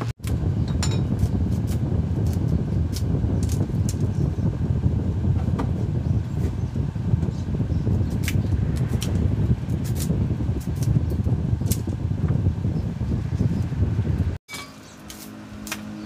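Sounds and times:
low rumble: 0.0 - 14.4
dry bamboo cracking: 15.0 - 16.0.

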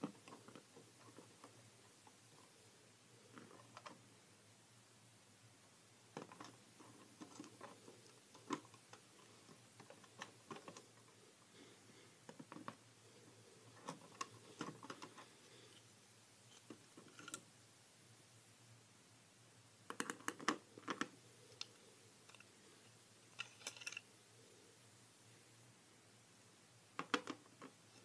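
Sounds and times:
plastic bricks clicking and knocking: 23.4 - 24.0, 27.0 - 27.8.

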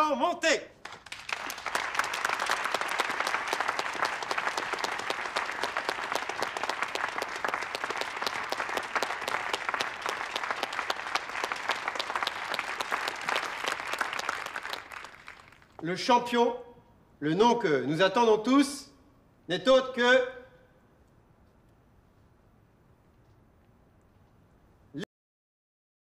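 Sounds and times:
crowd applauding: 0.8 - 15.8.

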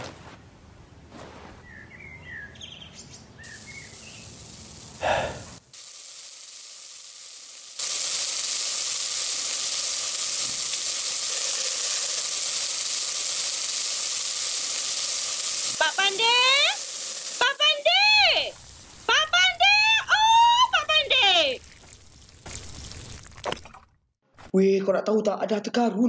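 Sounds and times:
faint bird chirps: 1.6 - 4.3
food sizzling in a pan: 3.4 - 23.2.

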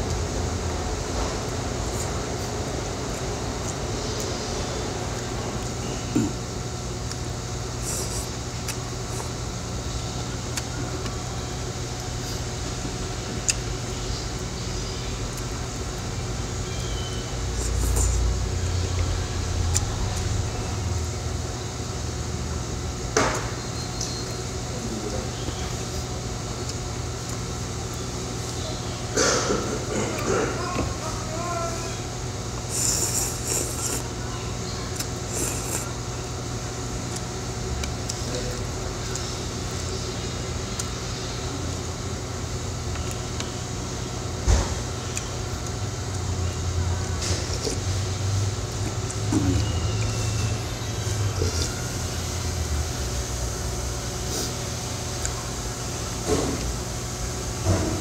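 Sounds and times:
steady low hum: 0.0 - 58.0
slurping noodles: 32.6 - 34.1, 35.2 - 36.0, 47.3 - 48.0.

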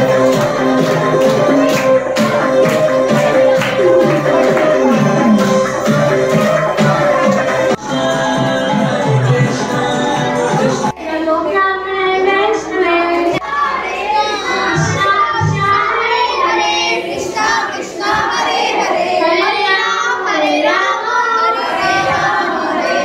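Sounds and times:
music with low beat: 0.0 - 10.9
women and children chanting: 0.0 - 23.0.

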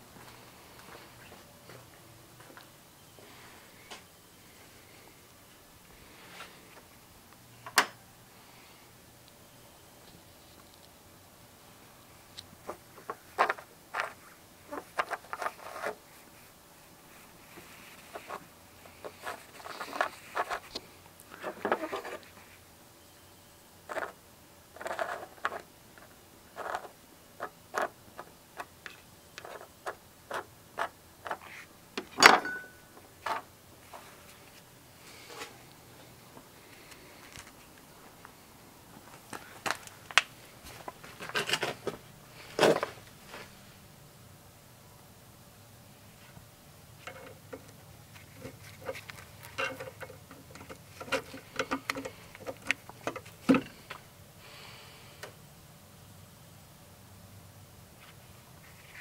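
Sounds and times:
small metal clicks and knocks: 47.0 - 54.0.

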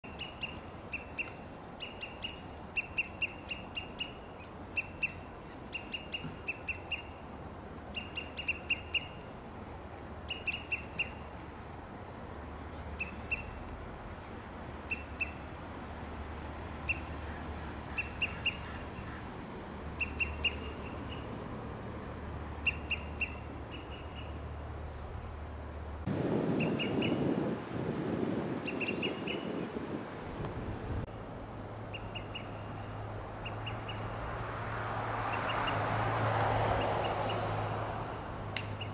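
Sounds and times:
bird sharp pip calls: 0.1 - 7.2, 7.9 - 9.2, 10.3 - 11.3, 13.0 - 13.6, 14.8 - 15.4, 16.8 - 19.3, 20.0 - 21.3, 22.6 - 24.4, 26.6 - 27.2, 28.6 - 29.5.

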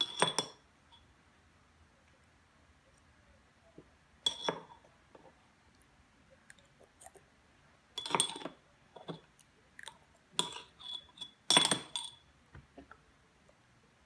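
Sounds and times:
metal spoon clinking in glass jar: 0.0 - 0.6, 4.2 - 4.8, 8.0 - 9.2, 10.4 - 12.3.

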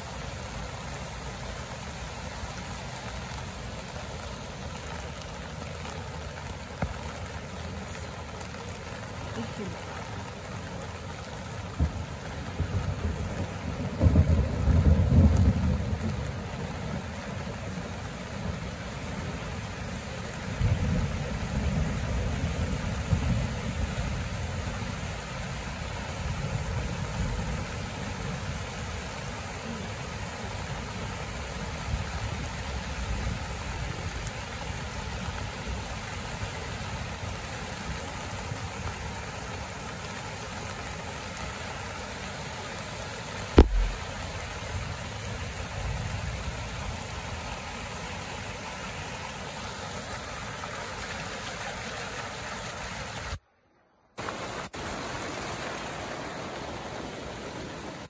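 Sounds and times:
river rushing over rocks: 0.0 - 53.4, 54.2 - 58.0
sharp knock: 43.6 - 44.1.

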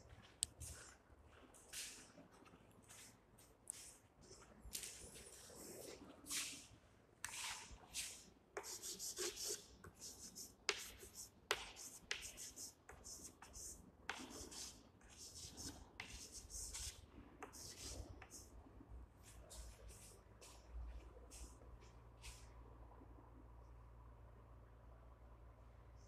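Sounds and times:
chalk scratching on chalkboard: 7.2 - 18.5
chalk tapping board: 7.2 - 18.5.

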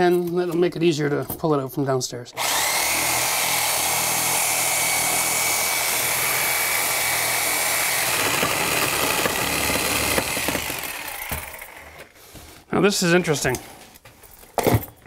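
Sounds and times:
reciprocating saw cutting steel pipe: 2.4 - 12.1.

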